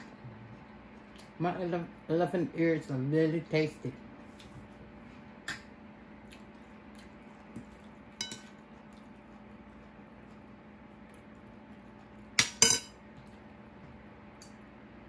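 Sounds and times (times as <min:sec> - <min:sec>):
faint steady hum: 0:00.0 - 0:15.0
cutlery clinking on plates: 0:12.4 - 0:13.0.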